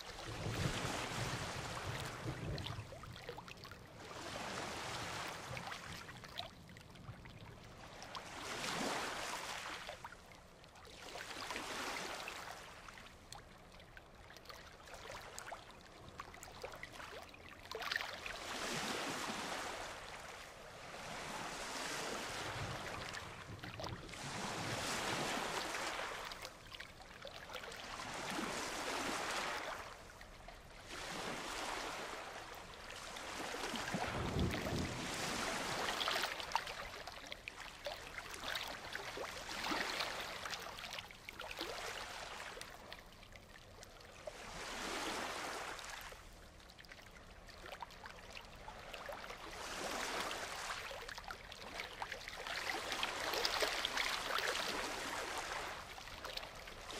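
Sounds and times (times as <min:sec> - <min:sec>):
ocean surf breaking on a beach: 0:00.2 - 0:03.0, 0:04.1 - 0:06.2, 0:18.5 - 0:26.3, 0:27.9 - 0:30.1, 0:30.8 - 0:36.5.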